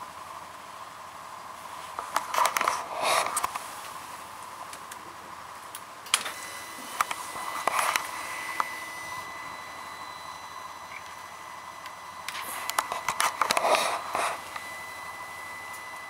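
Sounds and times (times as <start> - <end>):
steady hiss: 0.0 - 16.0
thin high whine: 1.4 - 5.4, 6.1 - 16.0.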